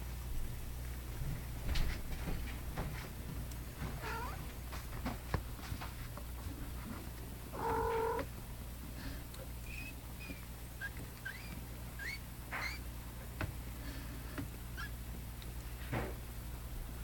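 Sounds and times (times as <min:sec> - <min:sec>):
cat meowing: 0:04.0 - 0:04.4, 0:07.5 - 0:08.3.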